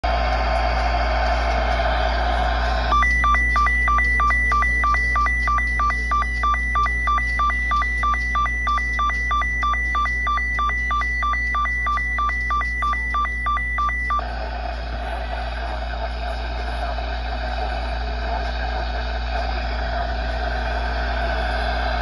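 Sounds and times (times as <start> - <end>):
warbling alarm tone: 0.6 - 16.2.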